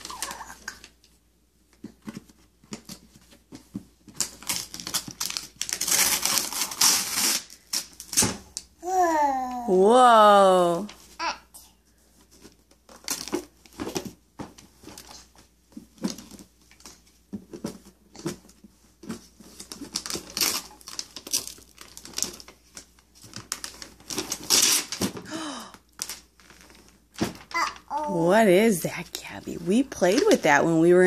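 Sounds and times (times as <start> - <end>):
wrapping paper tearing: 4.3 - 8.2, 20.0 - 22.4, 23.5 - 25.0.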